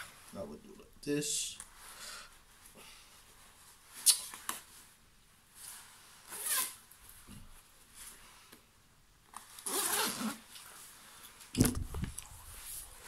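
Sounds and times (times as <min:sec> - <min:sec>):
nylon rustling: 0:01.6 - 0:13.0
jacket zipper zipping: 0:06.3 - 0:06.8, 0:09.6 - 0:10.5.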